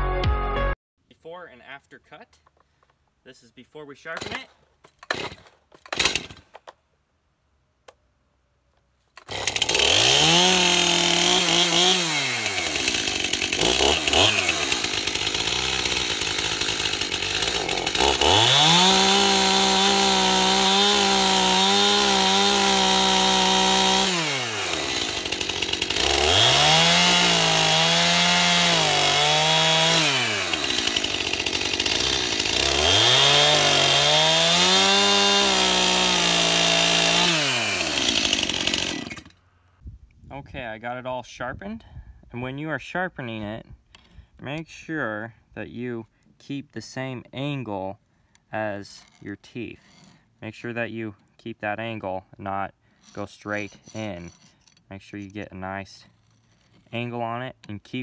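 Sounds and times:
chainsaw cutting log: 4.0s - 6.6s, 9.2s - 39.5s, 48.8s - 50.4s, 52.9s - 58.0s
chainsaw revving: 5.1s - 6.4s, 9.2s - 39.4s.

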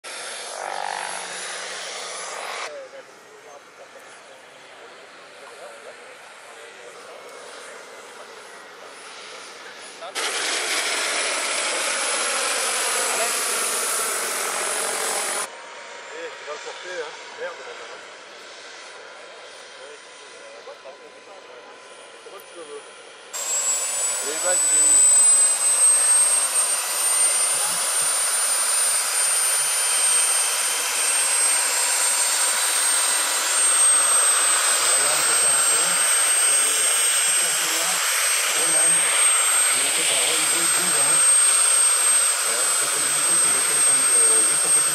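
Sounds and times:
model jet engine running: 0.0s - 44.9s
rotor rushing hiss: 0.1s - 2.7s, 7.2s - 15.5s, 23.4s - 44.9s.

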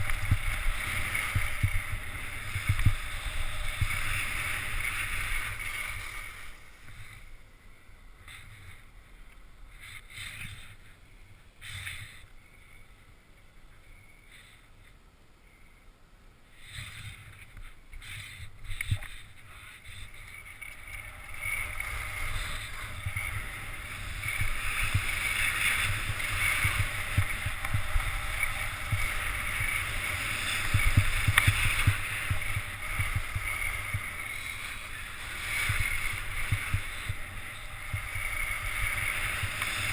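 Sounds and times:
wind on microphone: 0.0s - 7.3s, 16.7s - 39.9s
skis scraping over snow: 0.0s - 7.5s, 8.2s - 9.0s, 9.7s - 11.0s, 11.6s - 12.8s, 16.5s - 39.9s.

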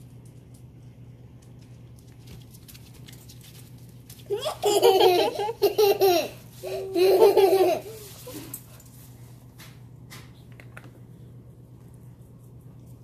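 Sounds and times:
boy giggling: 4.3s - 8.5s.

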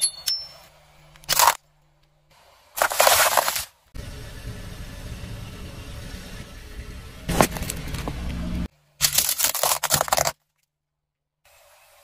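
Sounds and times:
loud crunching and crackling: 2.8s - 3.8s, 9.0s - 10.6s
plastic cracking under car tyre: 9.0s - 10.7s.

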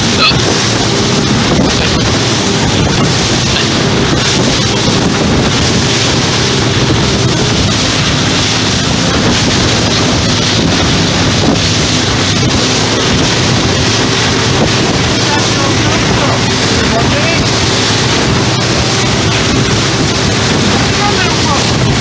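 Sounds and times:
boat engine droning: 0.0s - 22.0s
water rushing past hull: 0.0s - 22.0s
wind buffeting microphone: 0.0s - 22.0s.

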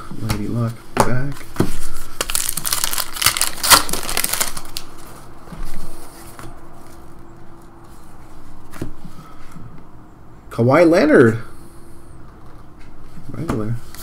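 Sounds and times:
cards rustling and flicking: 1.3s - 5.2s
card wrapper crinkling and tearing: 2.2s - 5.2s.

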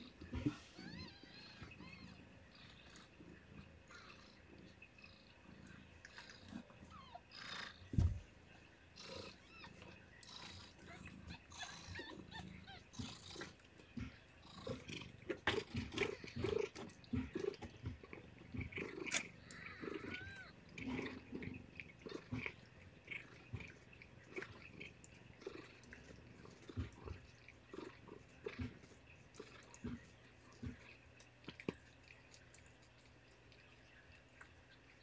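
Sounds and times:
cat licking and grooming: 0.0s - 35.0s.

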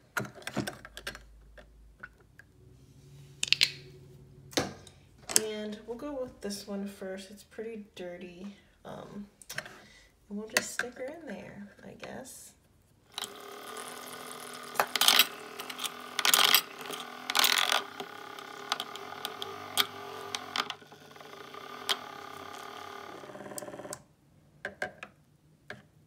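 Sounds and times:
plastic clacks and rattles: 0.1s - 2.4s
small electric motor running: 13.1s - 24.0s.

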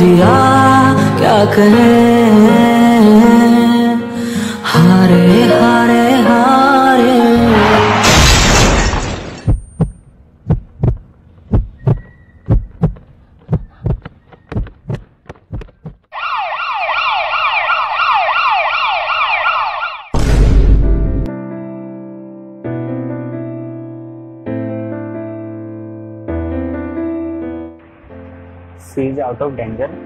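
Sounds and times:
soft piano music: 0.0s - 7.4s, 21.2s - 30.0s
heartbeat thumping: 9.8s - 16.1s
siren wailing: 16.1s - 20.2s.

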